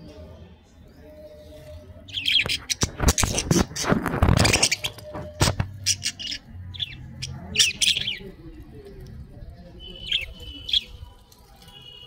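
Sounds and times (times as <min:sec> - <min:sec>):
budgerigars chirping: 0:02.1 - 0:03.6, 0:04.2 - 0:08.4.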